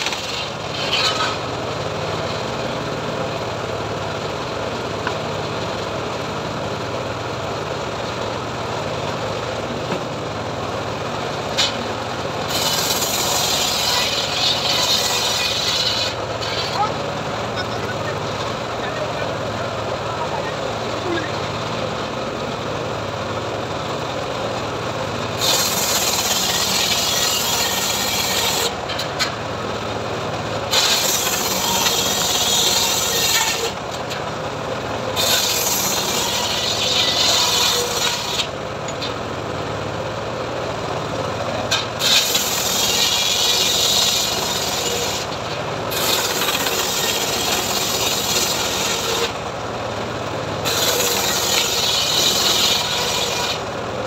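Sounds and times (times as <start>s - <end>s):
engine running steadily: 0.0s - 54.0s
saw blade rasping whine: 11.5s - 17.0s, 25.4s - 29.4s, 30.7s - 34.0s, 35.1s - 39.2s, 41.7s - 49.5s, 50.6s - 53.7s.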